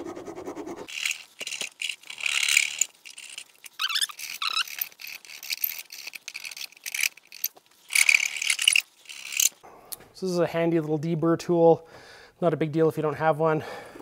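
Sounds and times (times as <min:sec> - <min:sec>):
file squealing on metal: 0:03.8 - 0:04.9.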